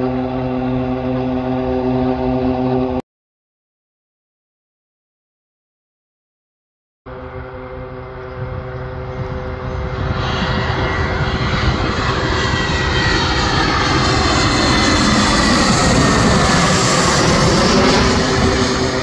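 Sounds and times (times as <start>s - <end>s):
jet engines whining: 0.0s - 3.0s, 7.1s - 19.0s.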